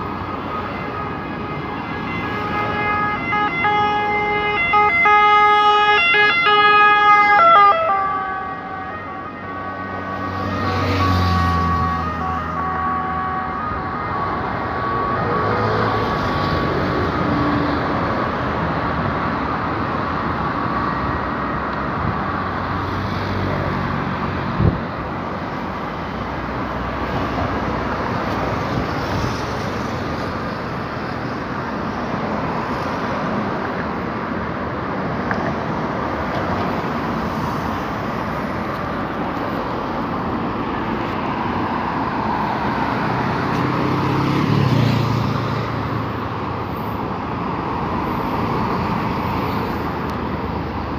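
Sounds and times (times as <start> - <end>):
vehicle passing: 0.0 - 18.1
road traffic noise: 0.0 - 50.9.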